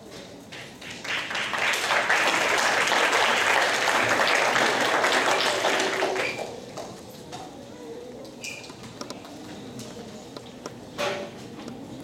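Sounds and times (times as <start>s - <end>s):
audience applauding: 0.8s - 6.6s.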